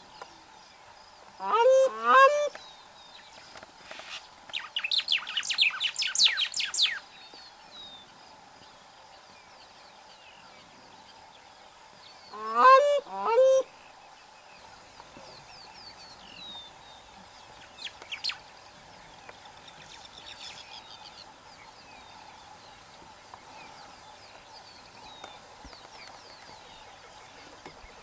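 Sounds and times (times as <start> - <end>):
small birds chirping: 2.5 - 8.9, 13.8 - 28.0.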